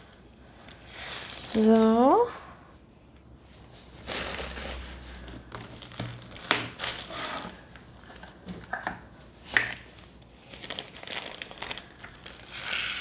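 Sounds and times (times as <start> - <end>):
plastic bags crinkling: 4.0 - 8.8, 9.6 - 13.0.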